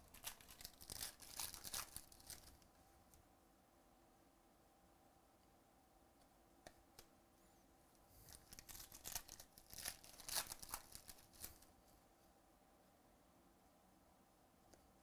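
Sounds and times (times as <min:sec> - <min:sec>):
foil wrapper tearing: 0:00.0 - 0:02.6, 0:08.3 - 0:11.6.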